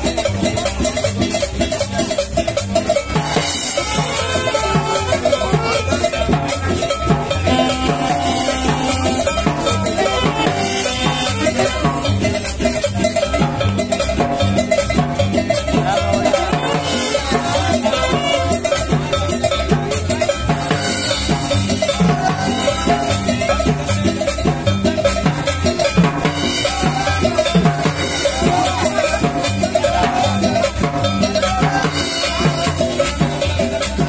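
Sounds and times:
drum kit dance beat: 0.0 - 34.0
saxophone melody: 3.3 - 6.6, 7.2 - 12.4, 15.9 - 18.8.

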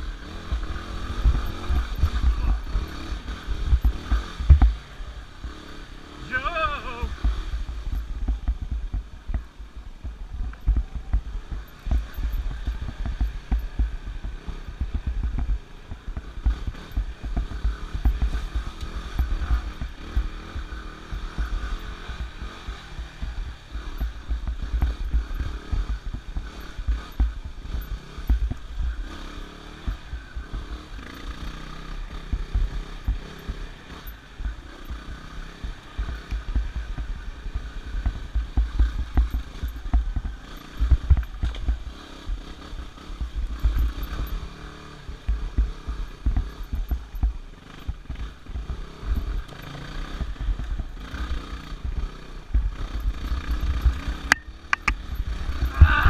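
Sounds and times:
wind rumble on microphone: 0.0 - 5.4, 51.7 - 56.0
motorcycle engine revving: 0.0 - 56.0.

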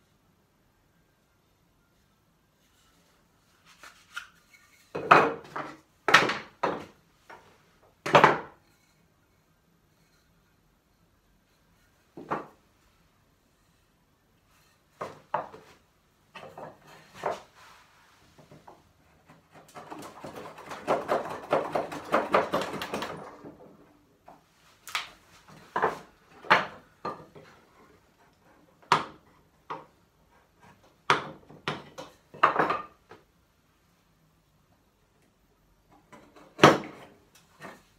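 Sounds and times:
chisel paring wood: 19.3 - 23.3.

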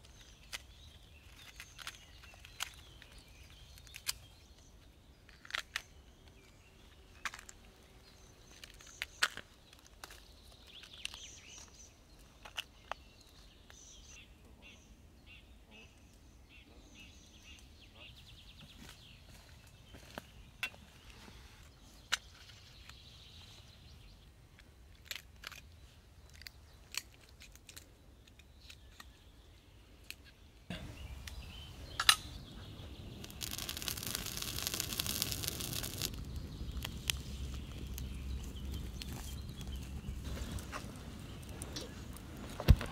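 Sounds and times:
faint birdsong: 0.0 - 42.9
loud hissing: 30.7 - 38.2
wood fire crackling: 31.1 - 42.9.

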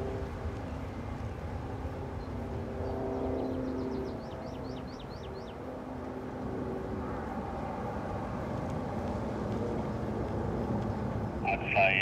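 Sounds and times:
jet engines at takeoff thrust: 0.0 - 12.0.

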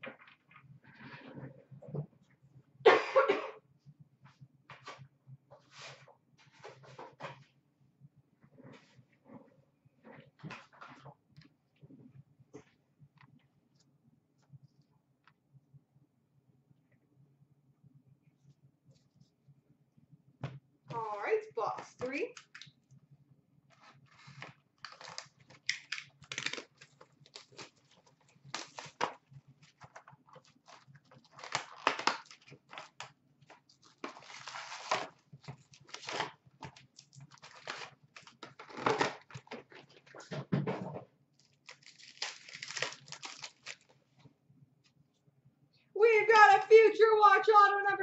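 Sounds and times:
wrappers crinkling: 23.8 - 40.2, 41.4 - 44.0
card packs tearing: 24.2 - 29.2, 30.4 - 33.1, 33.8 - 39.8, 41.4 - 43.9.

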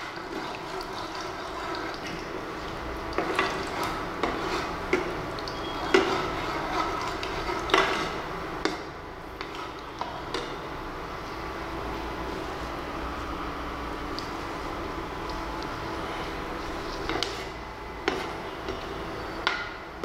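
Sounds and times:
ladle knocking and scraping pan: 0.0 - 10.6, 16.8 - 19.8
spices sizzling in hot oil: 0.0 - 11.5.

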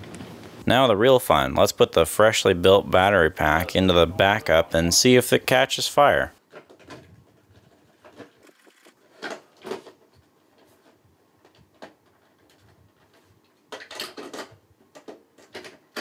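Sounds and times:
knocks and rustles: 6.4 - 16.0
plastic clicking and scraping: 6.5 - 16.0.

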